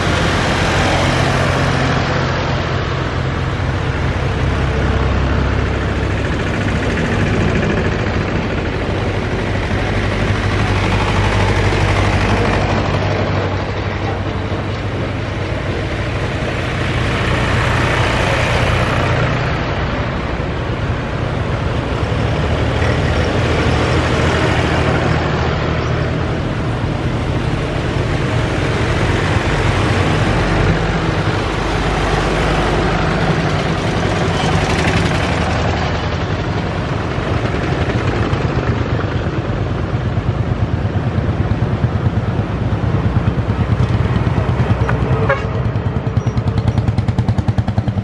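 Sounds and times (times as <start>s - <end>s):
tractor engines passing: 0.0s - 48.0s
truck engine: 0.0s - 48.0s.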